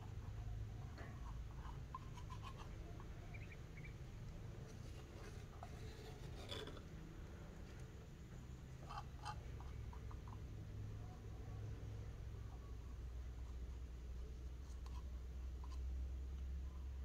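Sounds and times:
faint high chirps: 0:03.2 - 0:04.0.

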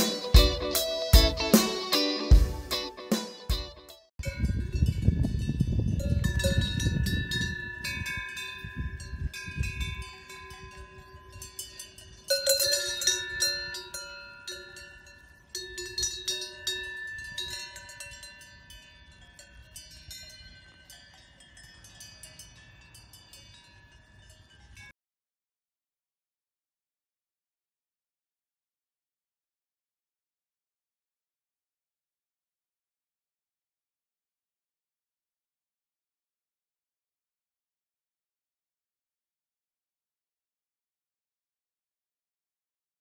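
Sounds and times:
cowbells clanking: 0:04.2 - 0:24.9.

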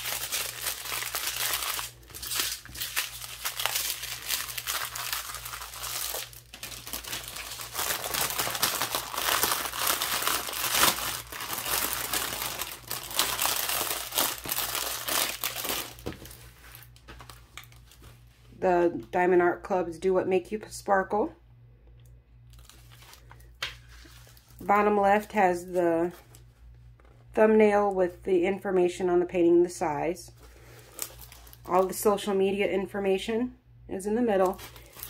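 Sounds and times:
plastic bags crinkling: 0:00.0 - 0:18.2, 0:22.5 - 0:26.4, 0:30.5 - 0:32.3, 0:34.4 - 0:35.0.

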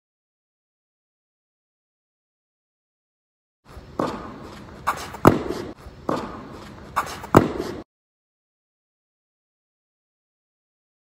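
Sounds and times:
tennis racket hitting ball: 0:03.8 - 0:07.8
ball bouncing: 0:03.9 - 0:07.8.

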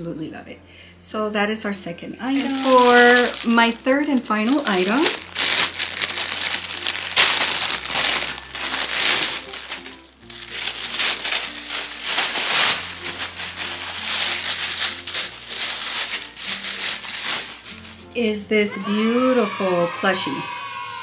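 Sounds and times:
light background music: 0:00.0 - 0:21.0
packaging crinkling: 0:02.2 - 0:18.1.

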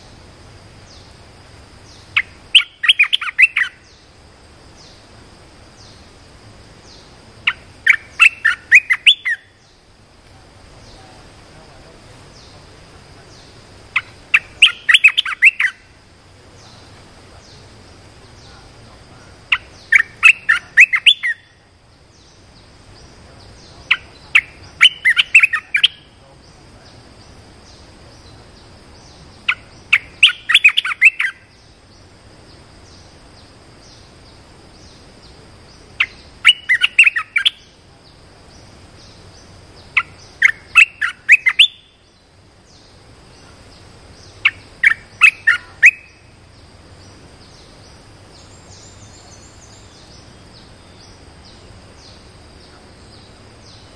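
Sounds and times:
faint high hum: 0:00.0 - 0:53.9
bird singing quick phrases: 0:01.8 - 0:04.1, 0:06.8 - 0:09.9, 0:12.3 - 0:15.9, 0:19.5 - 0:21.6, 0:22.2 - 0:31.8, 0:35.7 - 0:37.8, 0:38.6 - 0:42.1, 0:43.8 - 0:46.4.

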